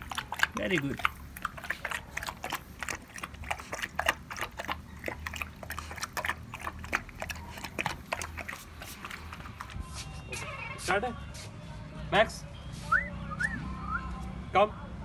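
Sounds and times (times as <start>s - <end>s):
puppy crunching dry kibble: 0.0s - 9.8s.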